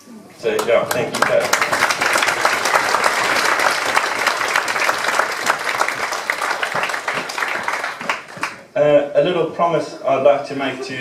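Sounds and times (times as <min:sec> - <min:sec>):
guests applauding: 0:00.5 - 0:08.7.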